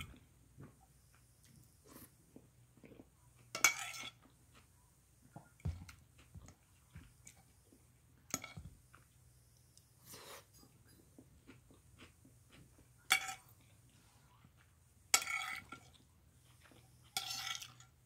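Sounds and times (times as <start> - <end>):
fork clinking and scraping on plate: 3.6 - 4.3, 13.1 - 13.6, 15.1 - 16.0, 16.6 - 17.9.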